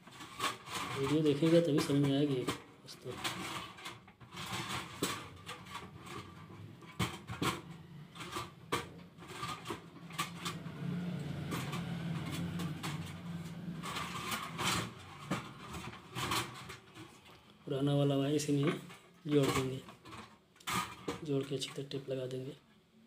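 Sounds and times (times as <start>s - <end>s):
low steady hum: 4.2s - 20.3s.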